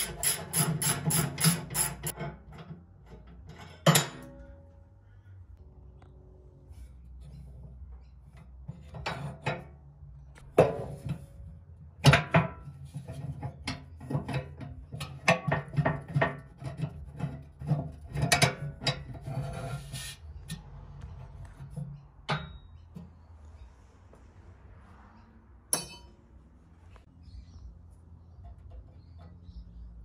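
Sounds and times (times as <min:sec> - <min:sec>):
sharp metal knocks: 0:25.7 - 0:26.2.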